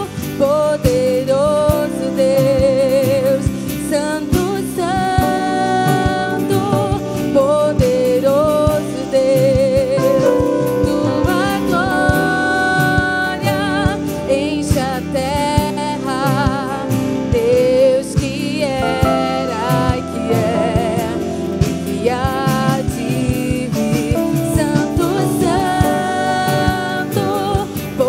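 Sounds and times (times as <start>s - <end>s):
person singing with vibrato: 0.0s - 28.0s
steady drum beat: 0.2s - 28.0s
band playing: 9.8s - 28.0s.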